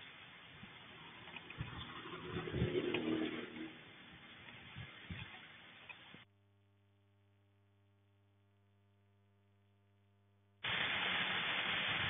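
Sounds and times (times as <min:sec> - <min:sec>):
rain and wind rushing: 0:00.0 - 0:05.8, 0:10.6 - 0:12.0.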